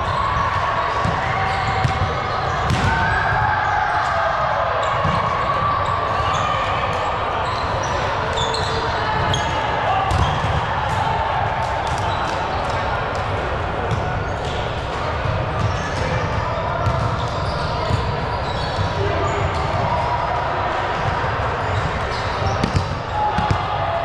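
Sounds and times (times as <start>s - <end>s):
players' voices: 0.0s - 24.0s
volleyball strikes and thuds: 1.8s - 3.2s.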